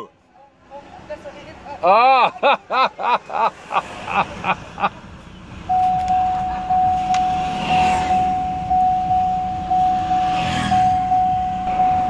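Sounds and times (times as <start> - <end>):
low vehicle rumble: 2.6 - 12.0
electronic warning beep: 5.7 - 12.0.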